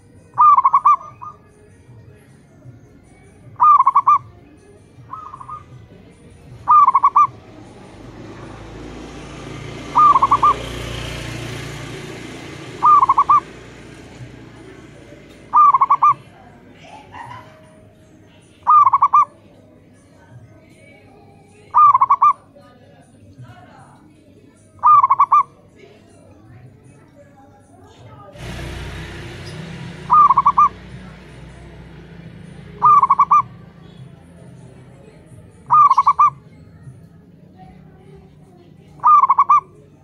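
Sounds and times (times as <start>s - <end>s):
doves cooing: 0.0s - 1.4s, 3.5s - 19.5s, 21.6s - 22.5s, 24.7s - 25.7s, 28.4s - 37.0s, 38.9s - 40.0s.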